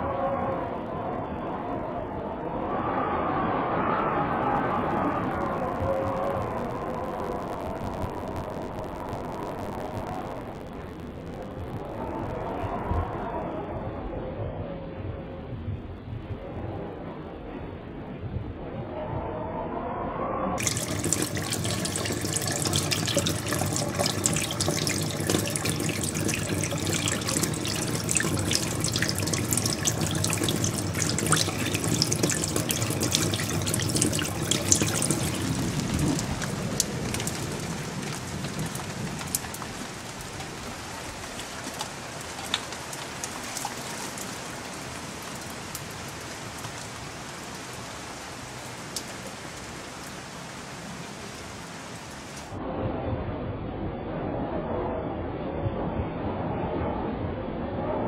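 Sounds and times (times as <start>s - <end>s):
water gushing into a basin: 20.6s - 47.5s
water drips: 20.6s - 52.5s.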